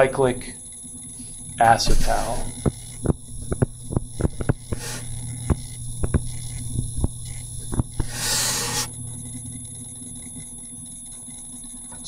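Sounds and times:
low electrical hum: 0:00.0 - 0:12.0
stylus tapping on a tablet: 0:02.6 - 0:06.3.

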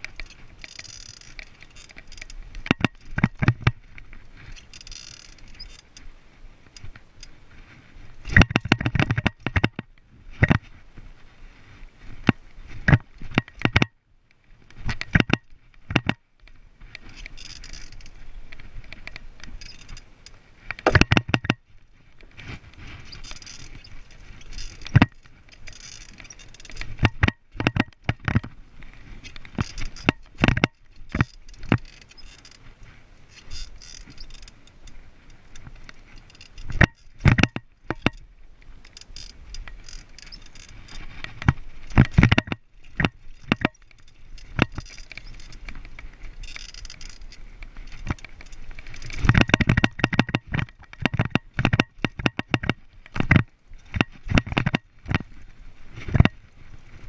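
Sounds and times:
bike chain and frame rattling: 0:00.0 - 0:03.6, 0:04.4 - 0:06.0, 0:17.0 - 0:21.0, 0:22.4 - 0:28.5, 0:29.1 - 0:32.7, 0:33.3 - 0:54.9
tyre noise on rough ground: 0:20.6 - 0:34.4, 0:35.6 - 0:57.0.

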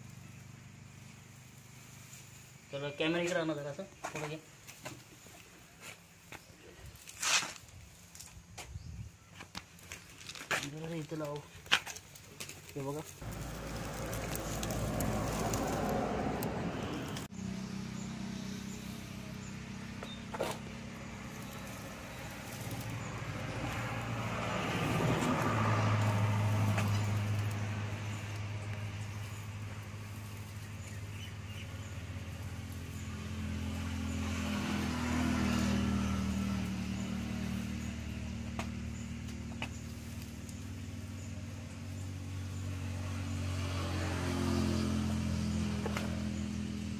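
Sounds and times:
motor engine humming: 0:13.2 - 0:43.2.

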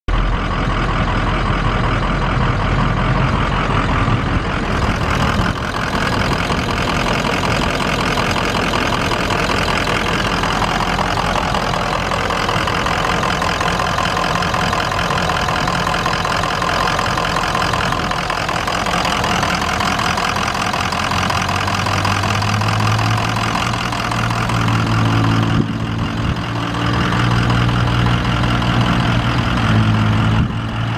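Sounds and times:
deep low hum: 0:00.1 - 0:20.6
diesel engine idling: 0:00.1 - 0:30.9.

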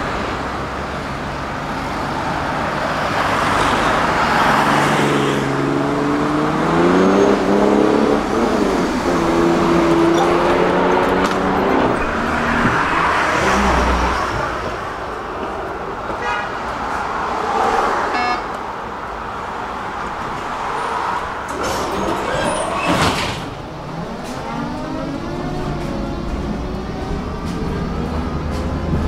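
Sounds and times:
tram wheels rumbling on rails: 0:06.5 - 0:18.0, 0:18.6 - 0:29.0.

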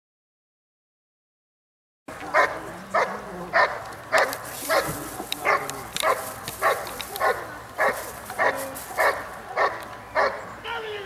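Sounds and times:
dog barking: 0:02.3 - 0:10.5.

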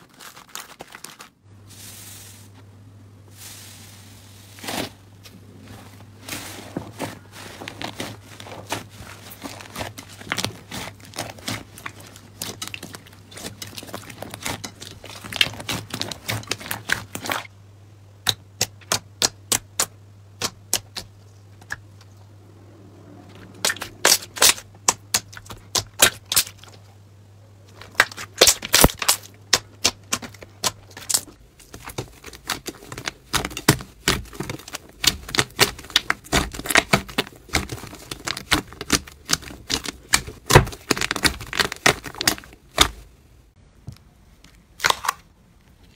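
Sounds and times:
low hum: 0:21.1 - 0:25.8.

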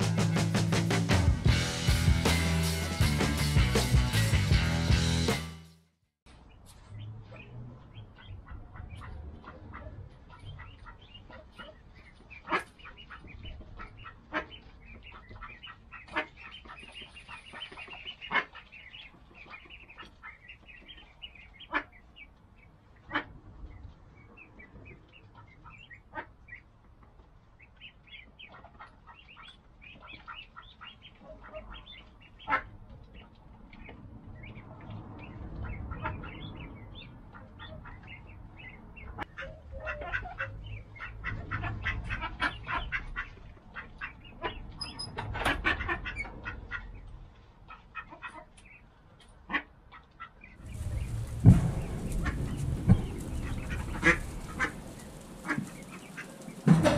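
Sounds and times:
ducklings peeping: 0:06.5 - 0:56.9
ducks quacking: 0:07.0 - 0:22.3, 0:22.9 - 0:23.4, 0:24.2 - 0:56.9
low rumble: 0:50.6 - 0:56.9.

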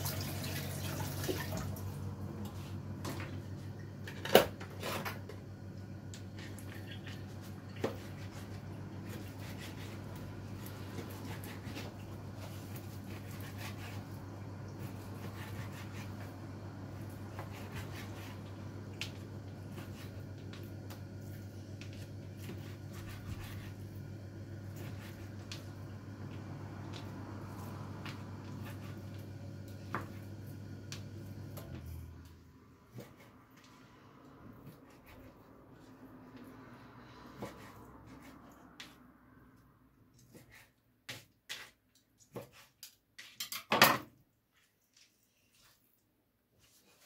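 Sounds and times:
running water: 0:00.0 - 0:02.0.

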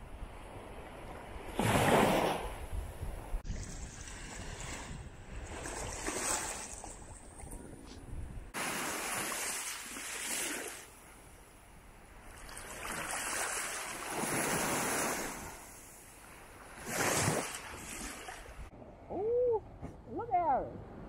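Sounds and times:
small waves washing on beach: 0:08.5 - 0:11.3, 0:12.1 - 0:18.7.

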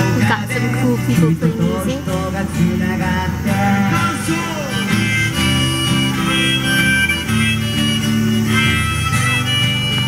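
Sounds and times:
acoustic guitars strumming: 0:00.0 - 0:10.0
held melody line: 0:00.0 - 0:10.0.

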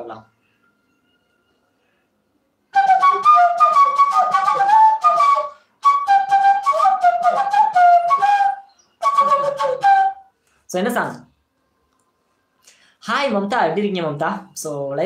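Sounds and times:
flute playing folk melody: 0:02.7 - 0:10.3.

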